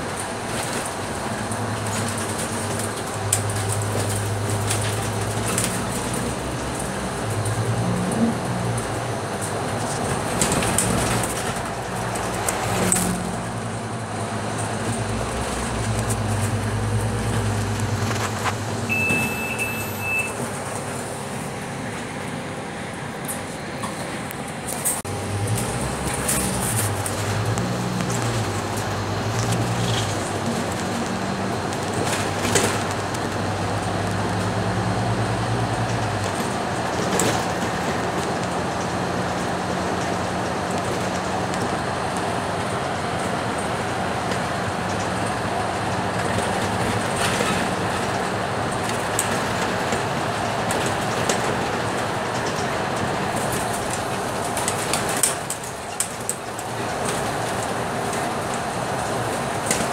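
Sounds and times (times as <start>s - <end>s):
bus diesel engine running: 0.0s - 59.9s
road noise: 0.0s - 59.9s
short high steady tone: 18.9s - 20.4s.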